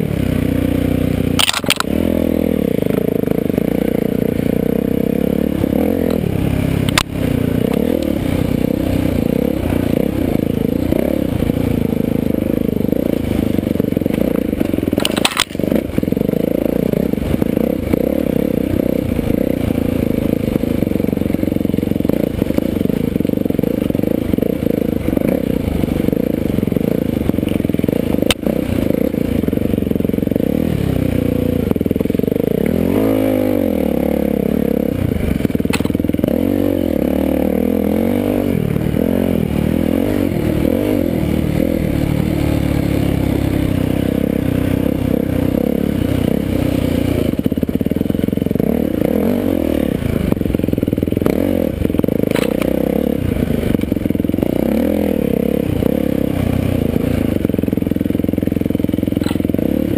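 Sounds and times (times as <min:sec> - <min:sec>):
dirt bike engine revving: 0:00.0 - 0:59.9
sharp clicks: 0:01.4 - 0:02.0, 0:15.0 - 0:15.6.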